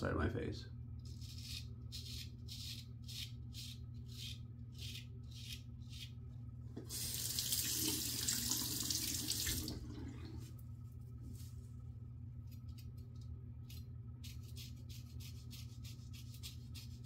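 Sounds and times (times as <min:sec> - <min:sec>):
tap running: 0:06.7 - 0:10.4
razor scraping stubble: 0:13.7 - 0:17.0.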